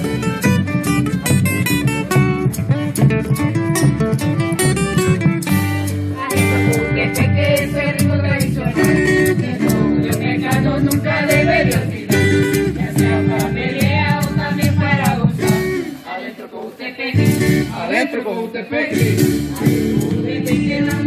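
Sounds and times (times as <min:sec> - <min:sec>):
strummed acoustic guitar: 0:00.0 - 0:16.0, 0:17.2 - 0:18.0, 0:18.9 - 0:21.0
maracas shaken: 0:00.0 - 0:21.0
people singing: 0:06.2 - 0:21.0.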